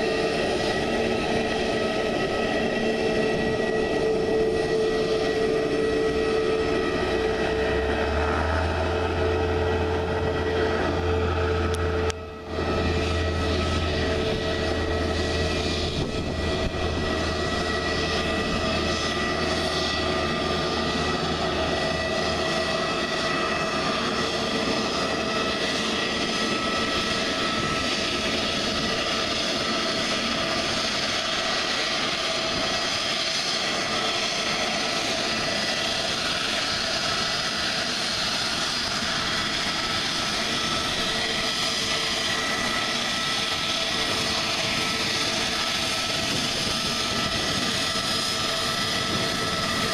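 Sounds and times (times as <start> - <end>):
jet engines running: 0.0 - 49.9.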